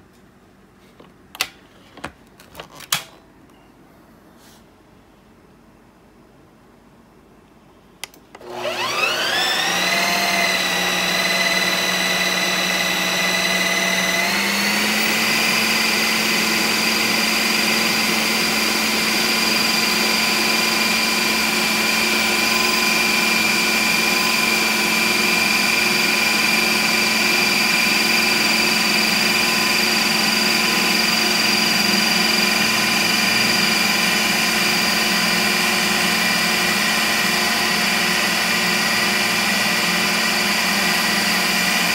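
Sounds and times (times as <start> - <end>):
ice cream maker motor whine: 8.4 - 41.9.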